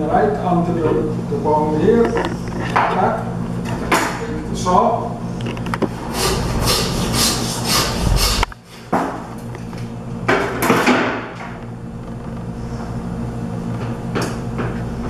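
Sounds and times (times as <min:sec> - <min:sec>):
low steady hum: 0:00.0 - 0:10.7.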